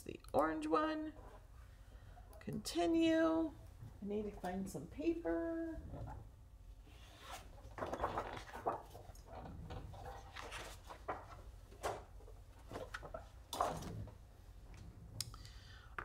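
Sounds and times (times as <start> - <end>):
paper and card rustling: 7.0 - 13.9.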